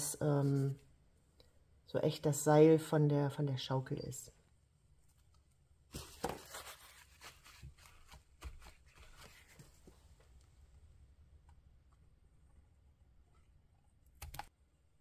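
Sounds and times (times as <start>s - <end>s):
hands rustling and tapping paper: 5.9s - 10.4s.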